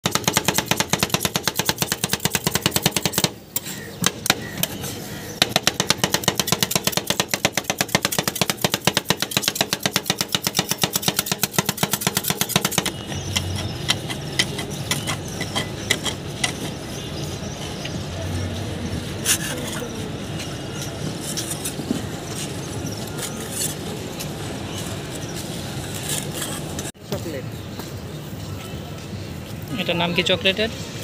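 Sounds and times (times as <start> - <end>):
spatulas scraping: 10.6 - 16.7.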